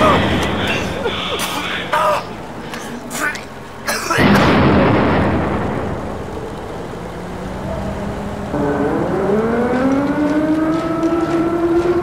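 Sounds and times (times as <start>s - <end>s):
rumbling noise: 4.2s - 12.0s.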